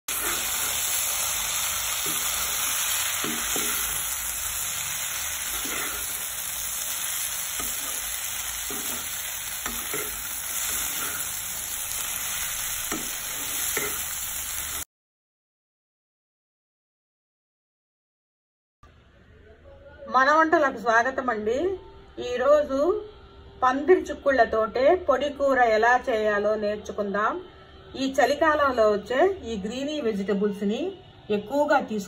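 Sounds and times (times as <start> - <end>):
food sizzling in oil: 0.0 - 14.9
spatula scraping a pan: 0.1 - 0.9, 2.0 - 4.1, 5.4 - 14.1.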